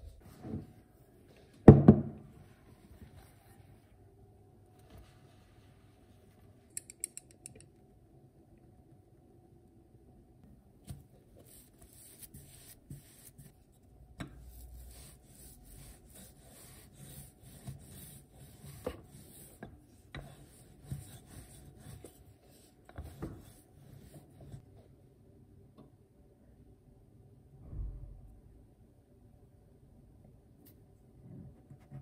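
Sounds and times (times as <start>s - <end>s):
rolling pin rubbing dough: 10.9s - 13.6s, 14.2s - 24.6s.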